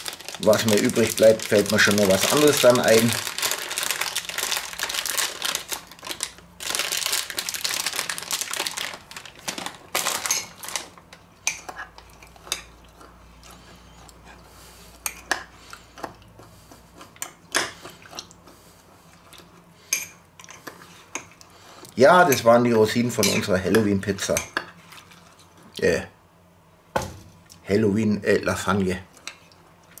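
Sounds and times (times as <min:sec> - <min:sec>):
plastic packet crinkling: 0:00.0 - 0:11.1.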